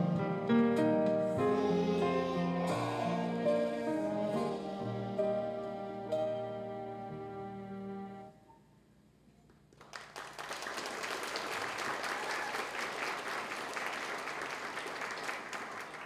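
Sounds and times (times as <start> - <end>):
held music chord: 0.0 - 8.4
audience applause: 9.8 - 16.0.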